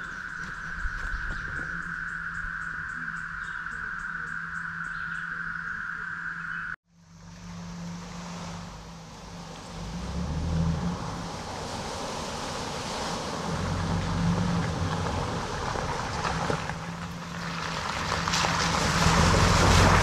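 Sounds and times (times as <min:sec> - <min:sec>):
insects humming drone: 0:00.0 - 0:11.6.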